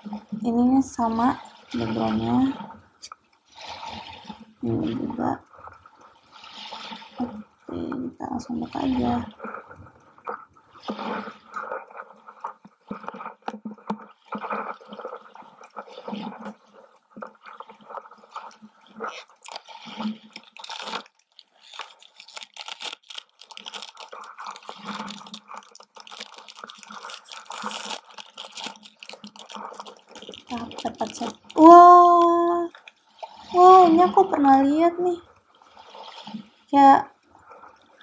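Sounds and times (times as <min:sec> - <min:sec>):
packaging crinkling and rustling: 0:19.3 - 0:19.6, 0:20.4 - 0:33.0
foil bag tearing: 0:21.7 - 0:31.6.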